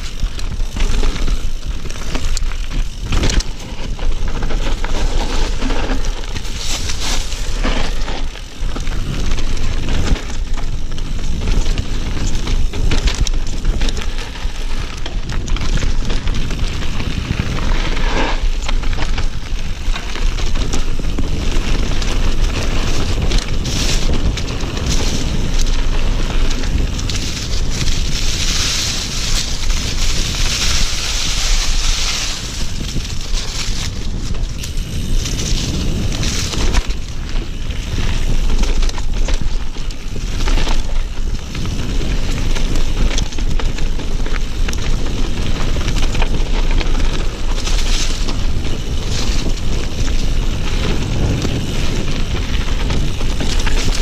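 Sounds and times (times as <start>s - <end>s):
tyres rolling over dirt and leaves: 0.0s - 54.0s
wind on microphone: 0.0s - 54.0s.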